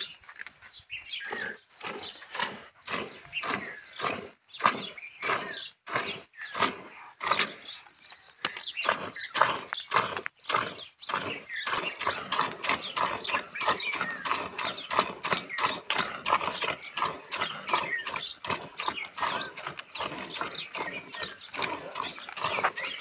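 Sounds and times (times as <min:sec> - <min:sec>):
milk squirting into metal bucket: 0:08.4 - 0:23.0.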